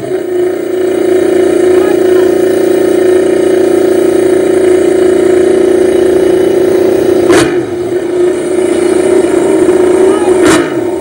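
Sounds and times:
racing motorcycle engines idling: 0.0 - 11.0
sharp crack: 7.2 - 7.8, 10.4 - 10.9.

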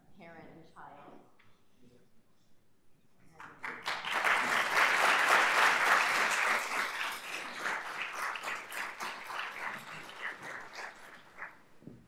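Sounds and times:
audience applause: 3.6 - 11.7.

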